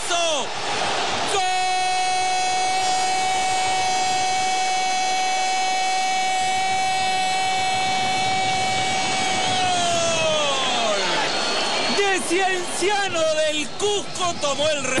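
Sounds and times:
commentator shouting goal: 1.2s - 4.5s.

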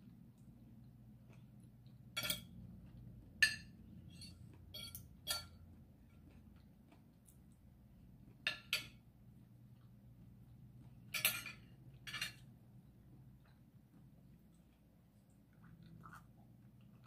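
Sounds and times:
cutlery clinking on ceramic plate: 2.1s - 2.6s, 3.4s - 5.7s, 8.4s - 9.0s, 11.1s - 12.5s.

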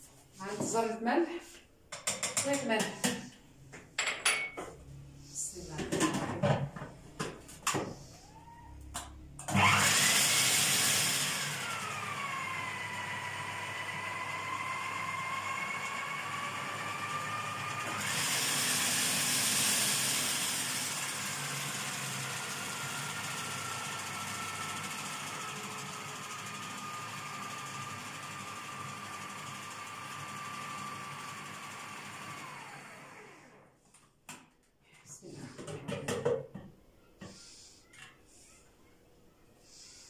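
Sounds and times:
food processor motor whining: 9.4s - 33.7s.

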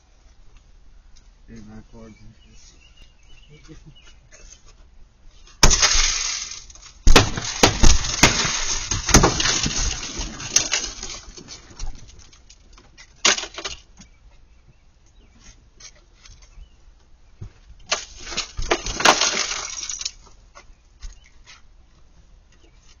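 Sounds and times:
crashing and clattering impacts: 5.6s - 12.5s, 17.9s - 20.2s.

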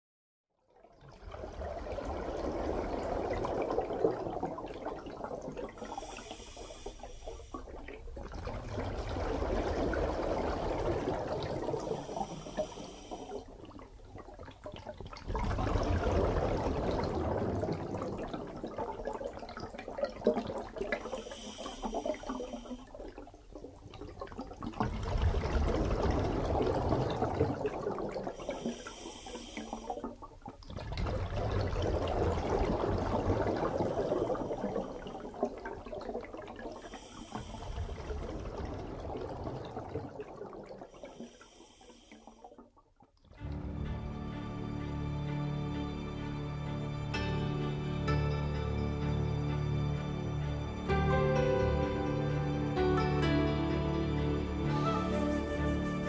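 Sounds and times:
gurgling exhaled bubbles: 0.8s - 43.8s
diver inhaling through regulator hiss: 5.7s - 7.8s, 11.7s - 13.6s, 21.0s - 23.0s, 28.3s - 30.0s, 33.7s - 35.4s, 36.8s - 38.2s, 40.9s - 42.5s.

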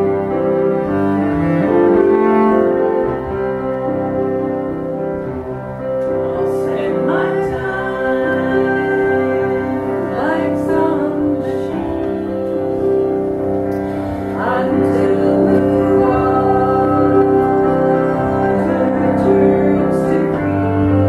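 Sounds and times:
bowed cello: 0.0s - 21.0s
piano: 0.0s - 21.0s
women singing folk song: 6.2s - 21.0s.

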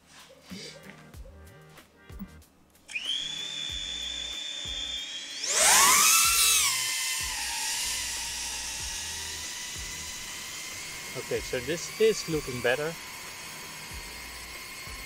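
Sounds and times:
drone motors whining: 2.1s - 15.0s.

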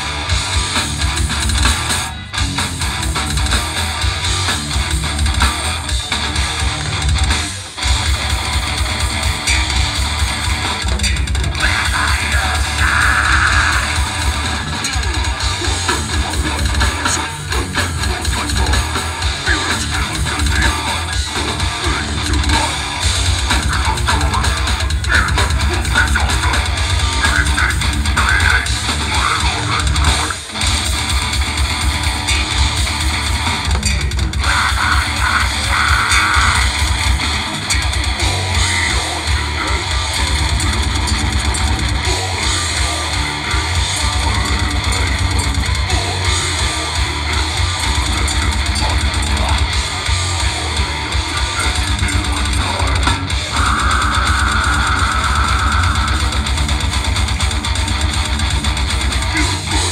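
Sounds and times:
bass guitar: 0.0s - 59.9s
distorted electric guitar: 0.0s - 59.9s
drum kit: 0.0s - 59.9s.

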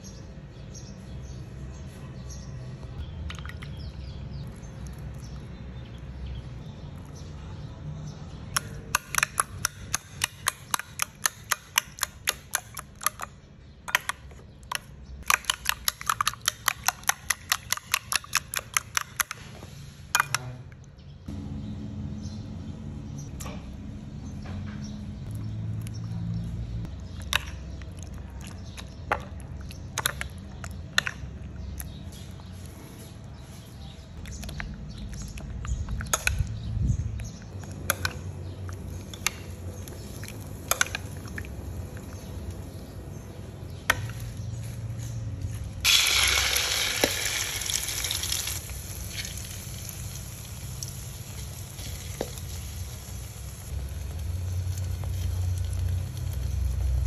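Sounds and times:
egg frying sizzle: 45.8s - 57.0s.

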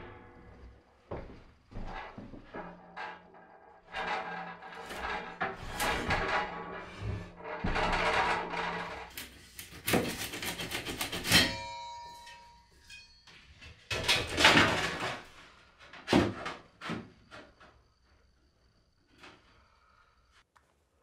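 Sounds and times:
metal pipe scraping: 0.0s - 14.0s
metal clang ringing: 11.2s - 13.4s.

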